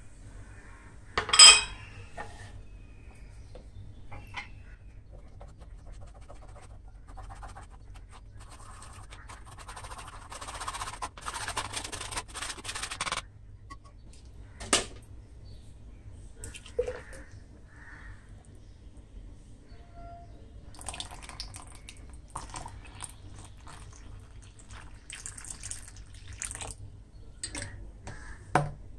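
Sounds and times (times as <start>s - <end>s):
spoon scraping through mesh strainer: 6.4s - 13.2s.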